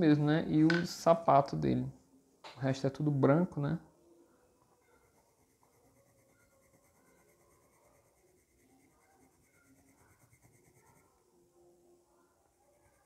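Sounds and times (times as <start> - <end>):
pencil scratching on paper: 4.8 - 11.2.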